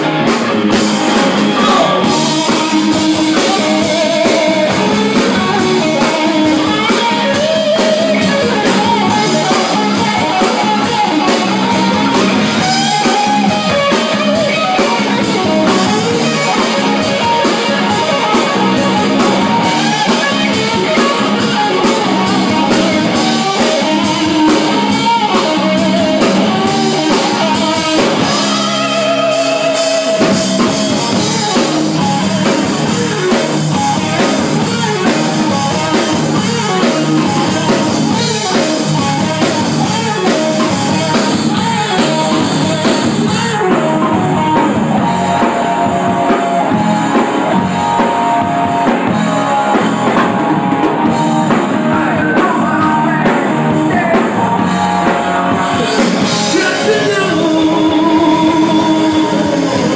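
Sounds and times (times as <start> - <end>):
drum kit: 0.0 - 59.9
electric guitars: 0.0 - 59.9
person singing: 1.4 - 30.3, 51.1 - 59.9.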